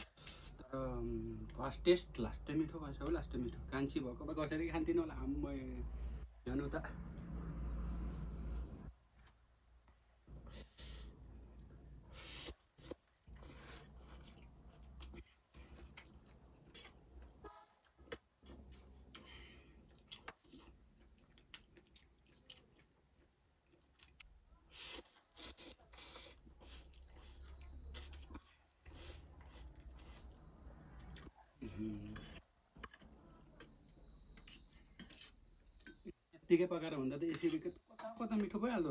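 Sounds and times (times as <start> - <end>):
slurping and chewing noodles: 24.0 - 30.3.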